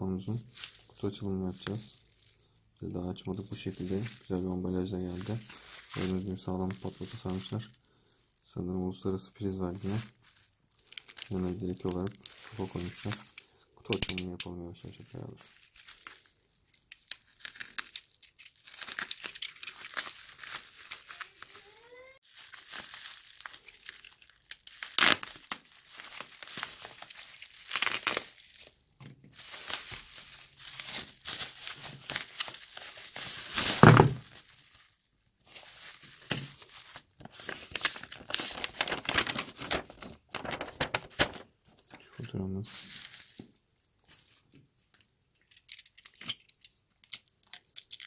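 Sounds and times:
bubble wrap crinkling: 0:00.0 - 0:46.3
tape tearing: 0:16.9 - 0:28.7.

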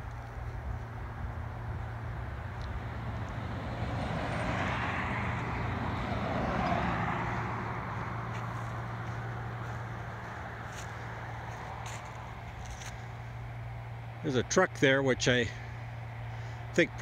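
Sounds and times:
car driving past: 0:02.0 - 0:14.1.

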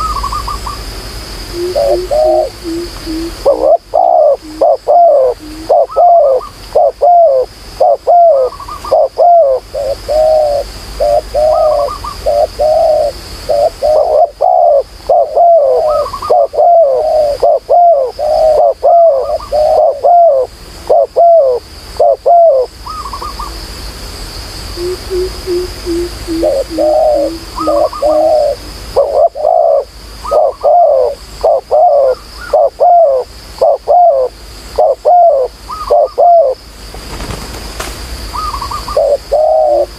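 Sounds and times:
doves cooing: 0:01.5 - 0:23.6, 0:24.8 - 0:36.6, 0:38.3 - 0:39.9.

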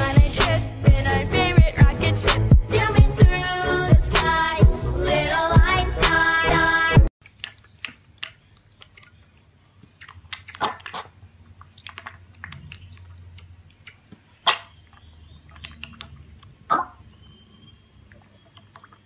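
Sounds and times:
piglet slurping milk: 0:07.2 - 0:17.1, 0:18.0 - 0:19.0.

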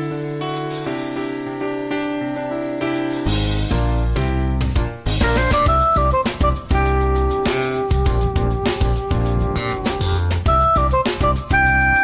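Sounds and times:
music with deep bass: 0:00.0 - 0:12.0
sustained keyboard notes: 0:05.2 - 0:12.0.

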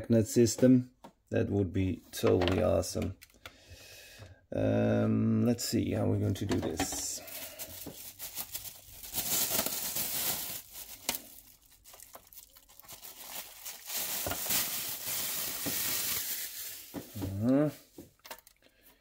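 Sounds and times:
plastic bag crinkling: 0:07.1 - 0:18.6.

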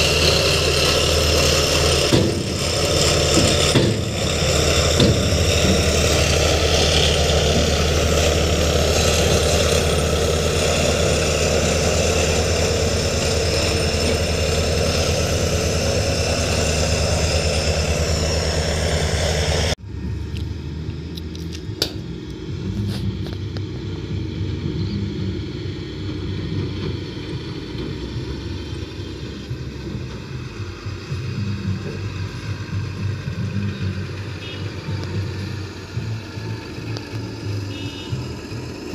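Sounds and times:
diesel truck engine running: 0:00.0 - 0:38.9
distant truck engine: 0:00.0 - 0:38.9
sharp knocks: 0:02.1 - 0:06.2.

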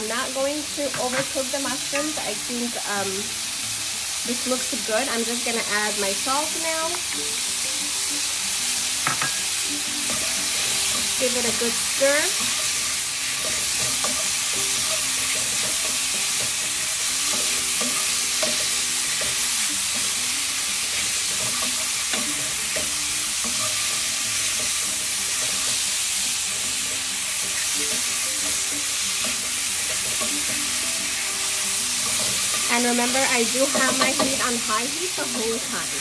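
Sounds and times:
mushrooms sizzling in a pan: 0:00.0 - 0:36.0
utensil stirring in pan: 0:08.4 - 0:36.0.

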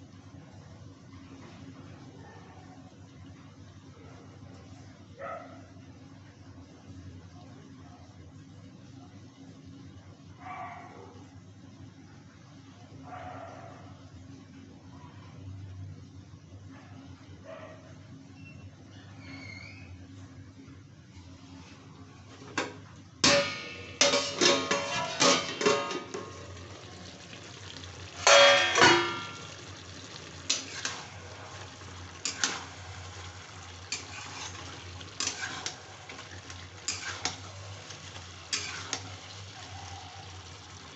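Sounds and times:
metal lid clanking on pan: 0:23.2 - 0:26.6, 0:28.2 - 0:29.6
metal spatula scraping pan: 0:24.0 - 0:26.3, 0:33.9 - 0:36.2, 0:36.8 - 0:37.5, 0:38.5 - 0:39.1.

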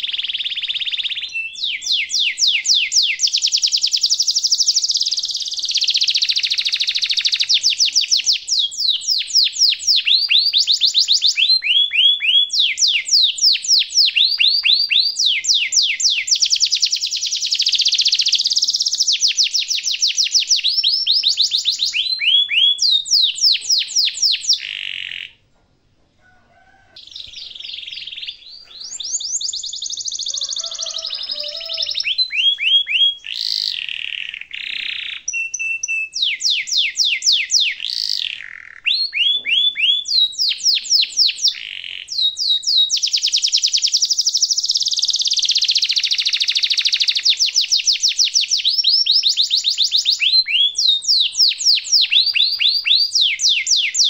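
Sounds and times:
canary singing trills: 0:00.0 - 0:25.5, 0:26.9 - 0:54.0.

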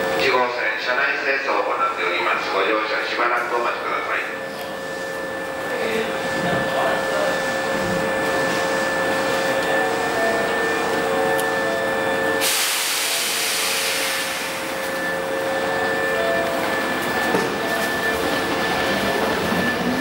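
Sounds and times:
train machinery humming: 0:00.0 - 0:20.0
loud hiss: 0:12.4 - 0:14.7.

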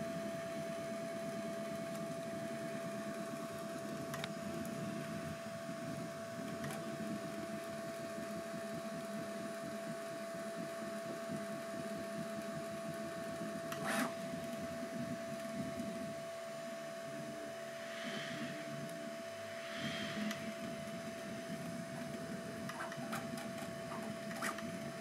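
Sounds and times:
steady high tone: 0:17.1 - 0:22.4
stepper motors whirring: 0:17.2 - 0:24.8
hiss-like burst: 0:17.6 - 0:21.5.

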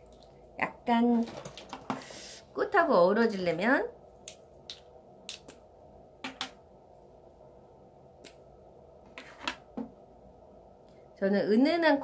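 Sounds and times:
makeup items clicking and tapping: 0:06.2 - 0:06.6.

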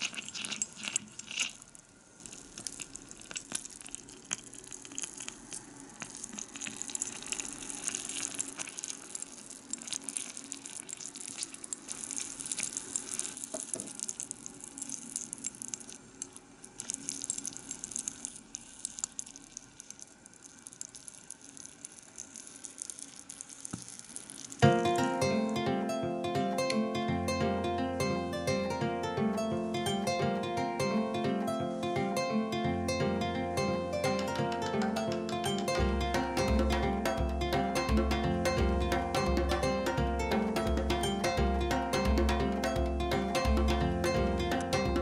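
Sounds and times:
sauce sizzling with small pops: 0:00.0 - 0:25.6.

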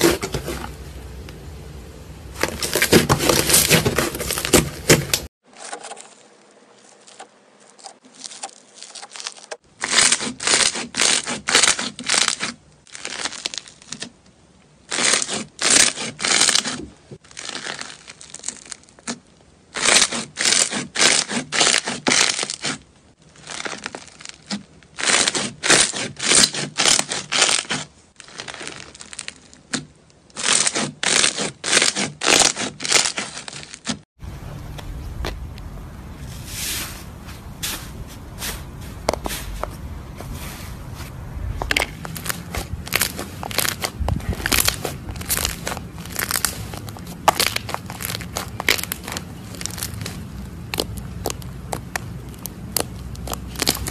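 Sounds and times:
slime crackling and crunching: 0:02.4 - 0:34.1, 0:41.4 - 0:53.9.

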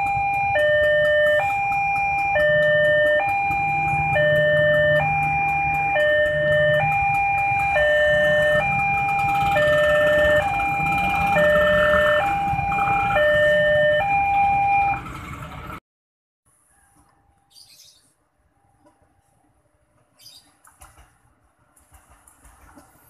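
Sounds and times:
two-tone level-crossing alarm: 0:00.0 - 0:15.1
low rumble of traffic: 0:00.0 - 0:15.8, 0:16.5 - 0:23.0.

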